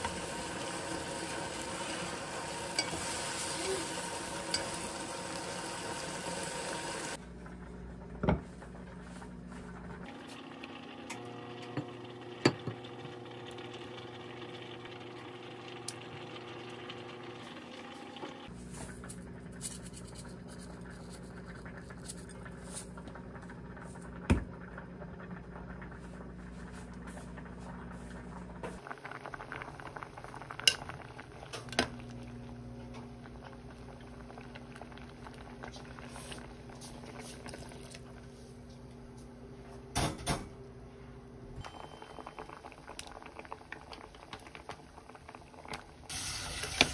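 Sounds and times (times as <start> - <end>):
water pouring into pot: 0.0 - 7.2, 12.0 - 18.5, 42.2 - 46.9
pot simmering: 0.0 - 39.9, 41.2 - 46.9.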